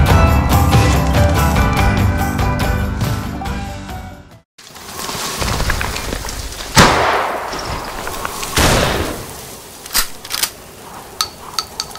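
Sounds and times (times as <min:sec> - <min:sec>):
echoing gunshots: 0:06.8 - 0:07.9, 0:08.5 - 0:09.4.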